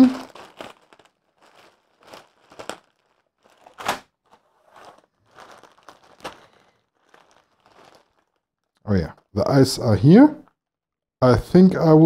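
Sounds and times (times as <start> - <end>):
plastic bricks shifting: 0.0 - 8.8
plastic bags crinkling: 0.0 - 8.9.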